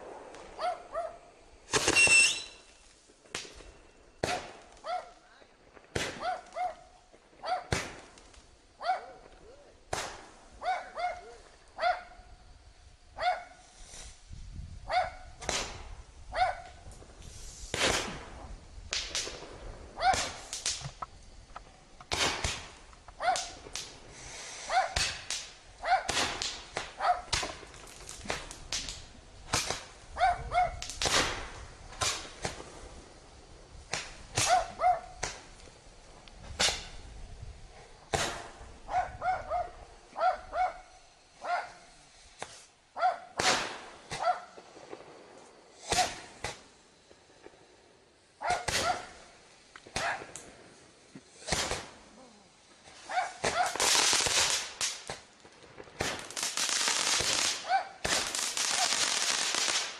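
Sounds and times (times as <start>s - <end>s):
fireworks popping and banging: 0.0s - 10.6s, 15.3s - 39.1s, 43.3s - 52.1s, 52.8s - 59.9s
short pitched yelps: 6.2s - 7.7s, 10.6s - 12.1s, 20.0s - 20.3s.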